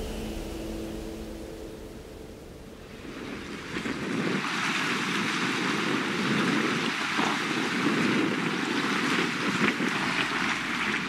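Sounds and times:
small waves lapping on shore: 2.8s - 11.0s.

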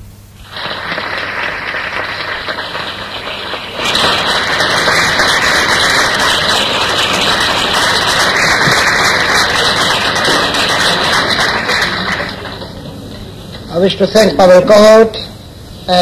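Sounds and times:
audience clapping: 0.4s - 13.7s.

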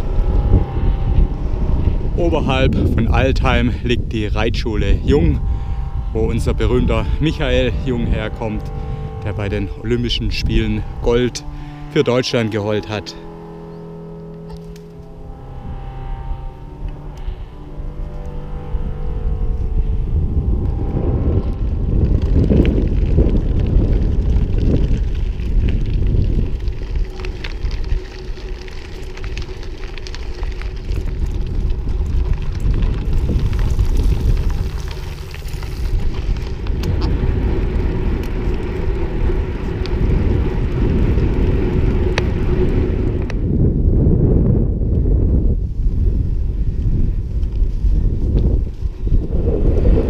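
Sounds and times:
bicycle tyre noise on path: 0.0s - 50.0s
wind rumbling on microphone: 0.0s - 50.0s.

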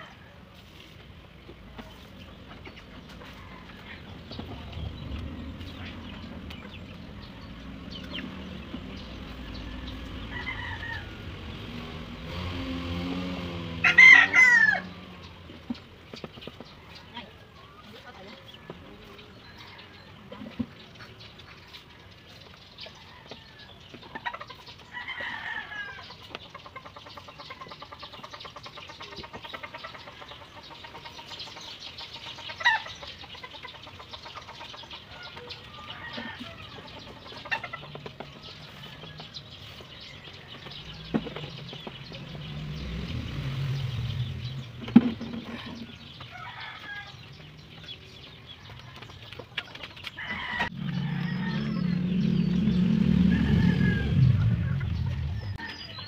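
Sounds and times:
chickens clucking: 0.0s - 56.0s
low rumble: 3.6s - 12.2s, 50.7s - 55.6s.

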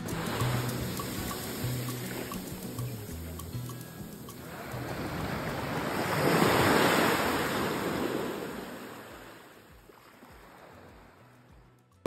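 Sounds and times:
surf washing up a beach: 0.0s - 11.6s.

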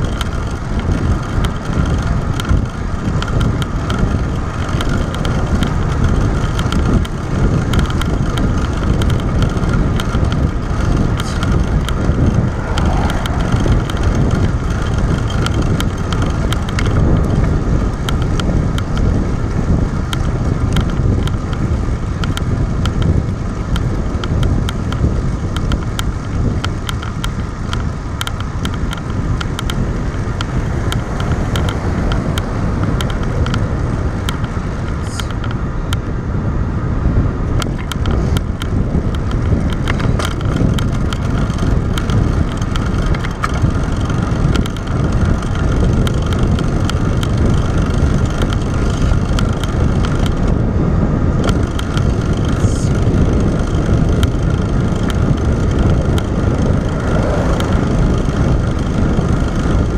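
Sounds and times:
bike clicks and rattles: 0.0s - 59.9s
road rumble: 0.0s - 59.9s
wind noise: 0.0s - 59.9s.

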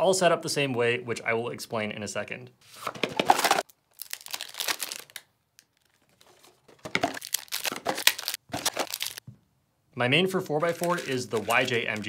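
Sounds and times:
packaging crinkling: 2.7s - 9.2s, 10.6s - 12.0s.

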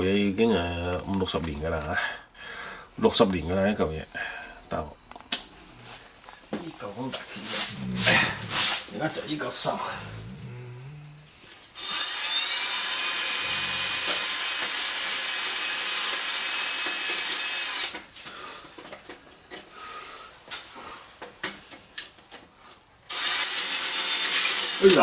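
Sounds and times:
electric drill boring into metal: 11.7s - 18.1s, 23.1s - 25.0s.

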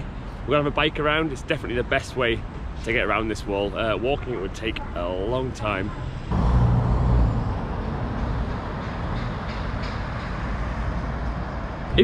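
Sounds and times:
steady traffic hum: 0.0s - 12.0s
vehicle passing with low rumble: 6.1s - 11.9s.

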